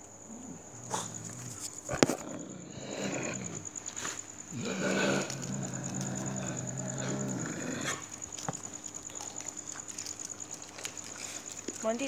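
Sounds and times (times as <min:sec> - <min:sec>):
dog growling: 0:00.3 - 0:08.2.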